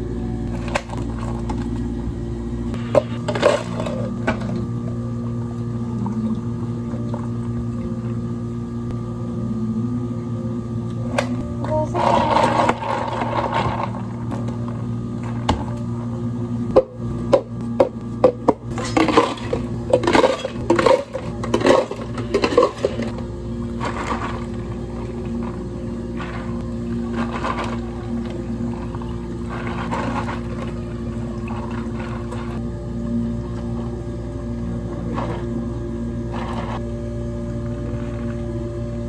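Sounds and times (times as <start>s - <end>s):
steady hum: 0.0s - 39.0s
ice cubes clattering into cups: 18.7s - 23.2s, 23.8s - 25.6s, 26.2s - 32.6s.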